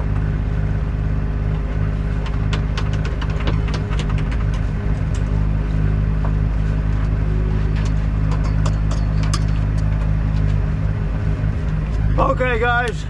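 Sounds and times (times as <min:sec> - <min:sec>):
boat engine droning: 0:00.0 - 0:13.0
light clicks and knocks: 0:02.2 - 0:05.4.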